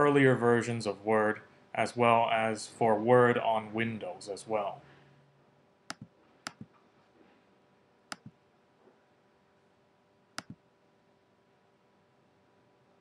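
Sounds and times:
computer mouse button clicks: 5.9s - 6.7s, 8.1s - 8.4s, 10.4s - 10.6s.

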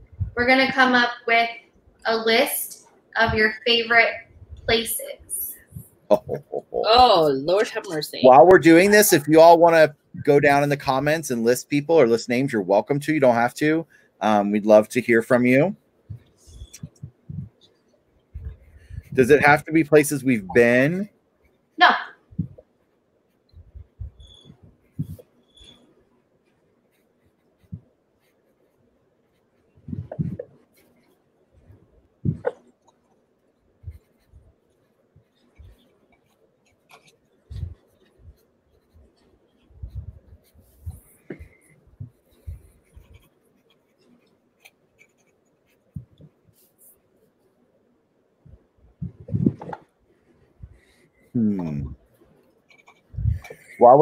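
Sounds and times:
pen scratching on paper: 26.5s - 31.2s, 33.8s - 47.4s, 52.0s - 53.8s.

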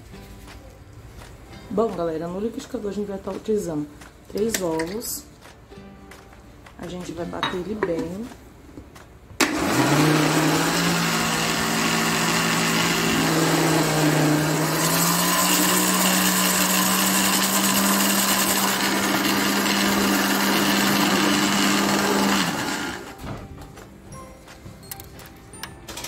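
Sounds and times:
electric blender motor: 9.4s - 23.2s.

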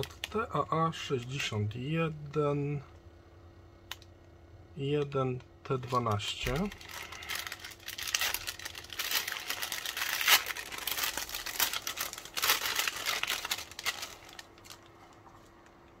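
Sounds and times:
paper envelope tearing and crinkling: 5.8s - 14.9s.

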